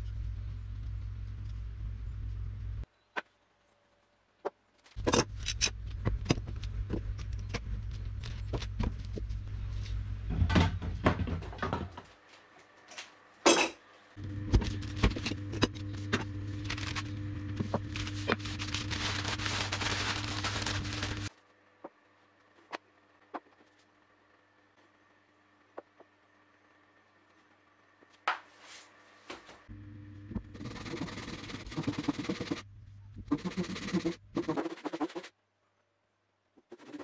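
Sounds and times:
steady low hum: 0.0s - 2.9s, 5.0s - 12.8s, 13.9s - 37.0s
newspaper rustling and crumpling: 16.6s - 21.5s.

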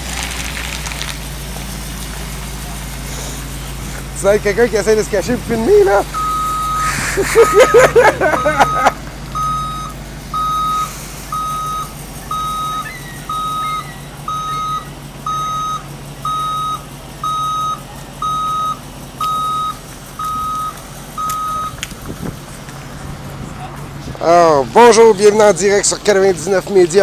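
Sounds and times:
truck reversing alarm beeping: 1.2s - 21.8s.

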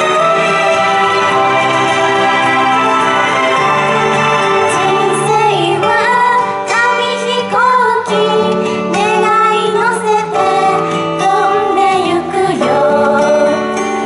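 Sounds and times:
instrumental pop backing music: 0.0s - 14.0s
group of girls singing in unison: 0.1s - 13.8s.

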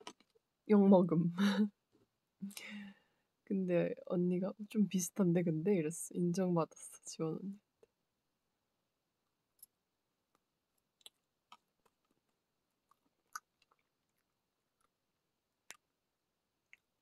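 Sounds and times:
soft chewing: 9.6s - 16.0s, 16.6s - 17.0s.

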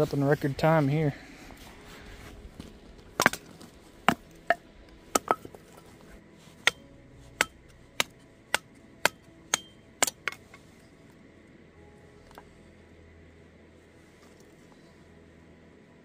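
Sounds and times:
axe chopping firewood: 3.1s - 5.9s, 6.5s - 10.6s.

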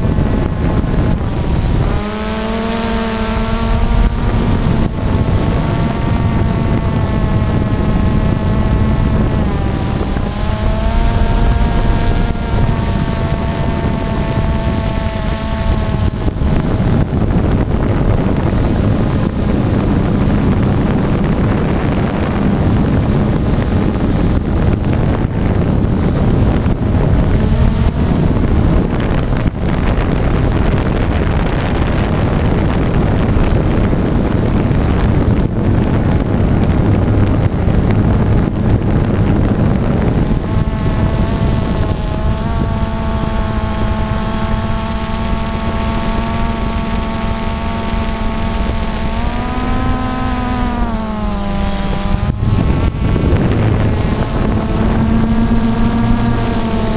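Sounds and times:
drone motors whining: 0.0s - 56.9s
rotor wash and wind rushing: 0.0s - 56.9s.

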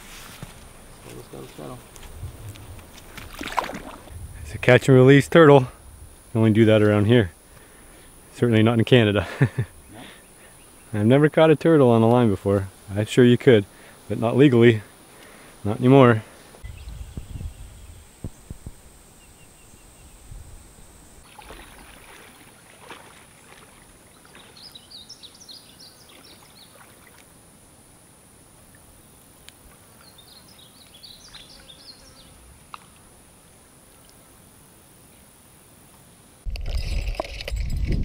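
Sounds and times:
footsteps rustling in grass: 0.0s - 4.1s
insect drone: 0.0s - 38.0s.

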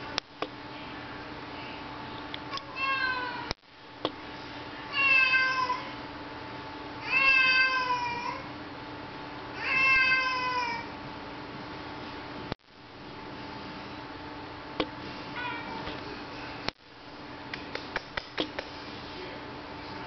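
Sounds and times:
cat meowing: 2.6s - 3.5s, 4.9s - 5.9s, 7.0s - 8.4s, 9.6s - 10.9s, 15.4s - 15.9s.

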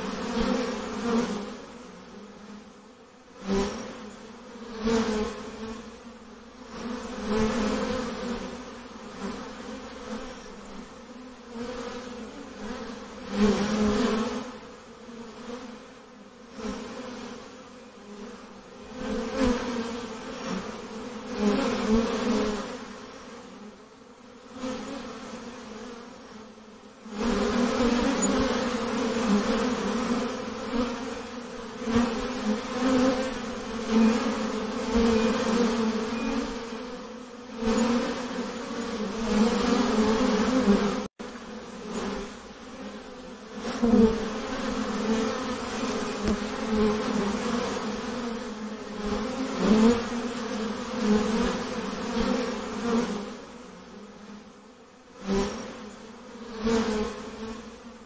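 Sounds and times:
honeybees buzzing: 0.0s - 58.0s.

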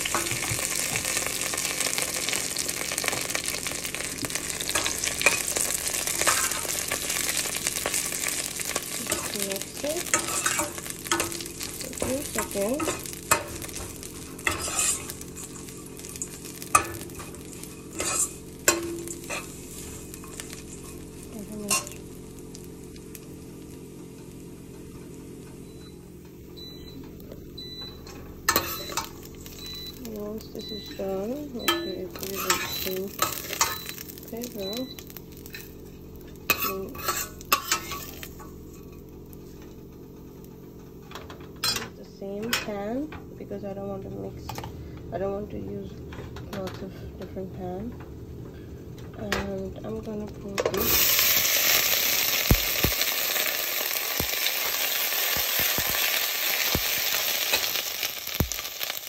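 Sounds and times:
frying sizzle: 0.0s - 45.8s, 48.5s - 59.0s
metal spoon clinking on pan: 10.1s - 15.0s, 31.7s - 33.9s
spoon scraping a metal pot: 14.4s - 15.1s, 17.9s - 19.5s, 31.7s - 33.8s, 36.5s - 38.2s.

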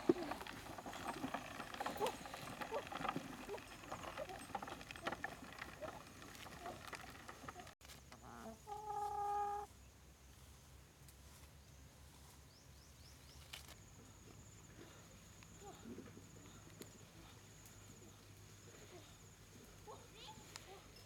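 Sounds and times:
chickens clucking: 8.2s - 9.7s.

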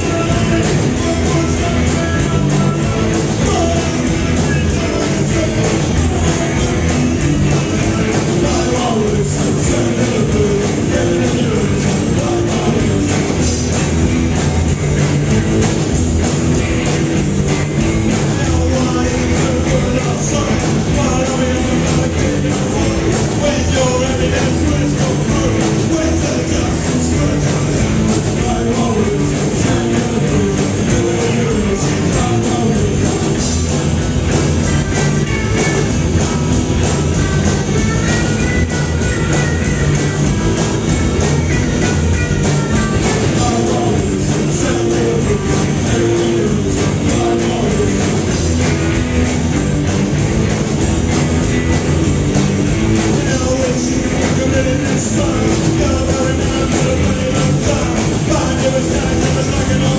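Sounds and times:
person singing: 0.0s - 13.8s, 18.1s - 33.8s, 41.9s - 48.7s, 53.1s - 59.9s
rock band playing live: 0.0s - 59.9s.

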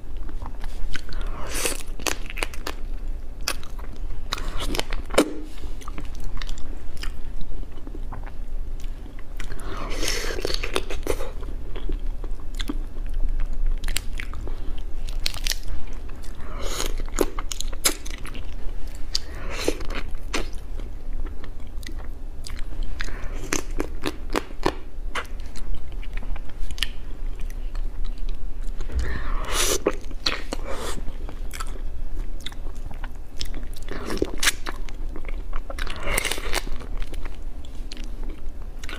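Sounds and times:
chewing and crunching crab: 3.4s - 29.1s, 29.8s - 38.9s.

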